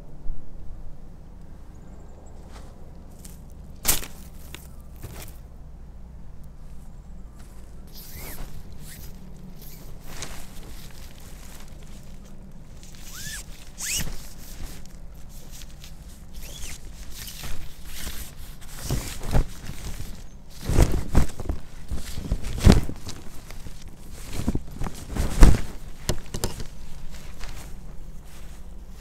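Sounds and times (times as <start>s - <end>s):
rustling and handling noises: 2.4s - 5.6s, 6.5s - 29.0s
zipper-like rasps: 7.9s - 10.2s, 12.8s - 14.8s, 16.3s - 19.2s.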